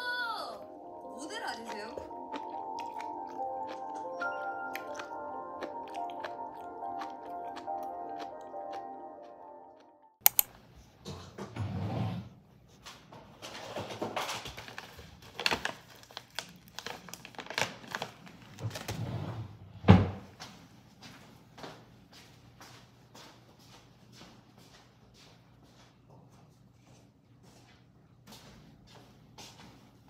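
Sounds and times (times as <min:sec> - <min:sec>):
background music: 0:00.0 - 0:10.2
papers rustling: 0:13.4 - 0:19.0.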